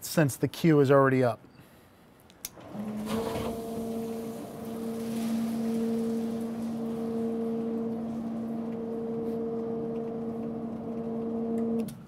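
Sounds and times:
electric pump hum: 2.5s - 12.0s
water hissing through pipes: 2.8s - 9.8s.

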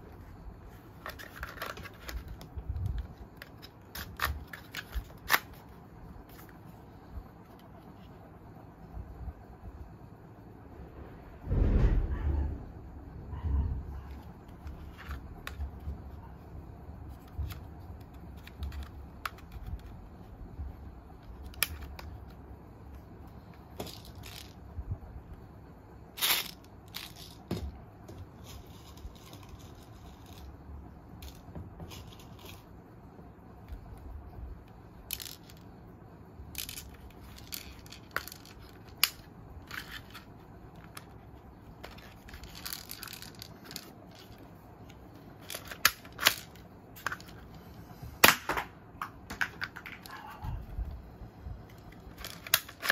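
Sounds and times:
low handling rumble: 7.0s - 17.0s.

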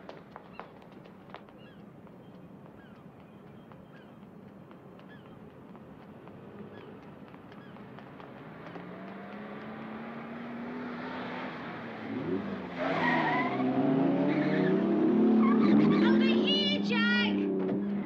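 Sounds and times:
tyres squealing: 12.8s - 13.7s.

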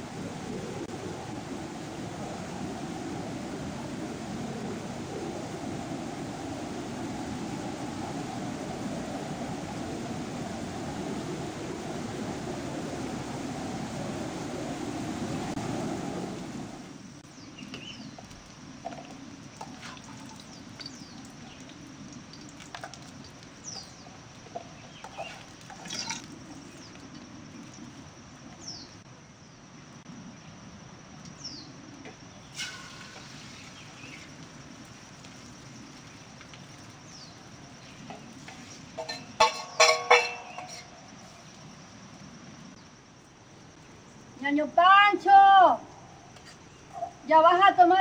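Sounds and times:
metal spatula clanking on frying pan: 39.0s - 40.9s.

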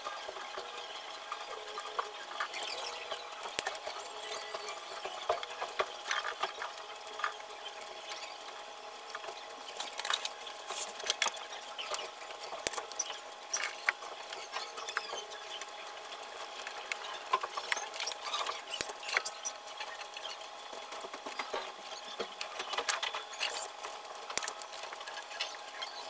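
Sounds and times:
tape crackling and rustling: 9.7s - 14.0s.

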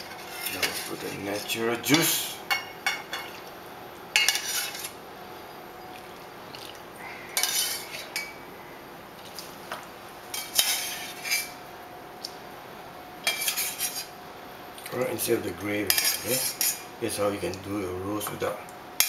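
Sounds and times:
metal ladle scraping saucepan: 4.2s - 5.0s, 7.4s - 8.3s, 10.4s - 11.6s, 13.2s - 14.1s, 15.9s - 16.9s.

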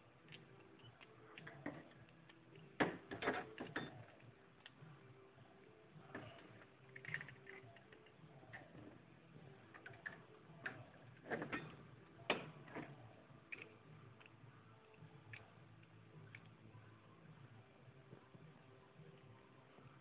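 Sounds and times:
metal tools clicking and knocking: 6.1s - 8.8s.

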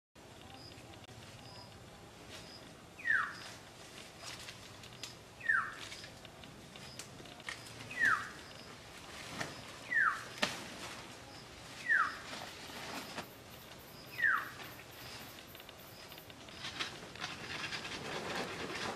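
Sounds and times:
bird whistling downward call: 3.0s - 3.4s, 5.4s - 5.8s, 9.9s - 10.2s, 11.8s - 12.2s, 14.1s - 14.6s
scattered clicks: 4.4s - 8.7s, 13.4s - 17.9s.

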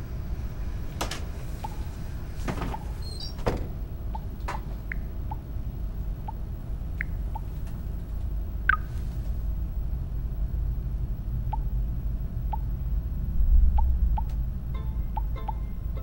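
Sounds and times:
low rumble: 0.0s - 16.0s.

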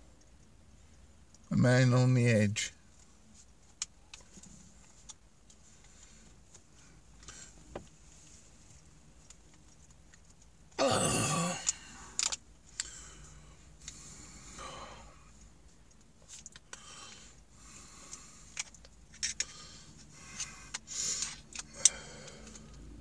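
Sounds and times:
man groaning: 10.8s - 11.9s
man grunting: 10.8s - 11.9s.

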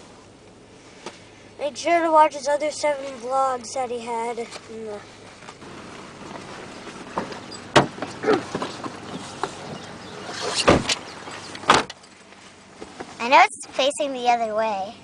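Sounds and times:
rustling: 2.8s - 13.2s
knocks and thumps in car cabin: 6.2s - 12.0s.

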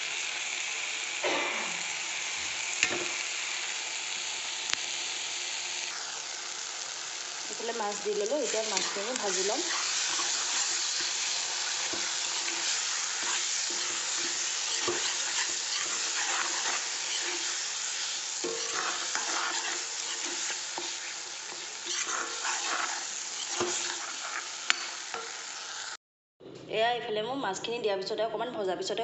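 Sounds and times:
fish sizzling in oil: 0.0s - 26.0s
spatula scraping pan: 7.9s - 25.9s
spatula knocking pan: 8.8s - 17.7s, 18.4s - 24.1s.

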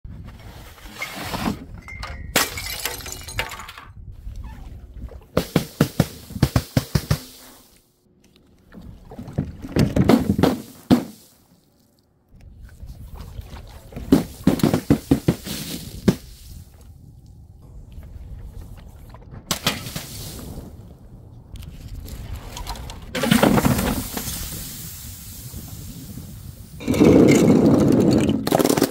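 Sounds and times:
glass bottles breaking: 1.8s - 3.9s.

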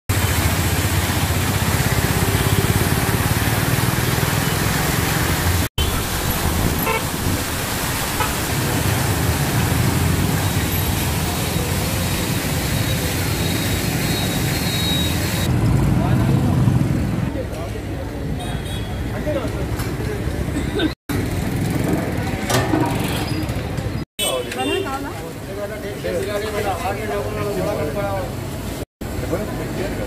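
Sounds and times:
motorbikes and rickshaws passing: 0.1s - 18.4s, 19.0s - 24.0s.

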